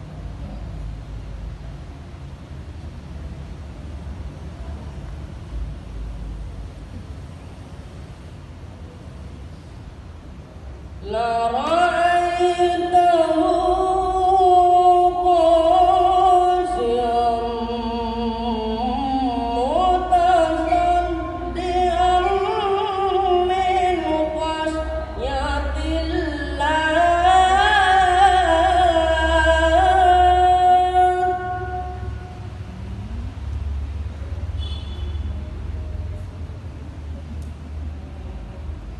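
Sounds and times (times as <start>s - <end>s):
person chanting through a microphone: 11.0s - 32.6s.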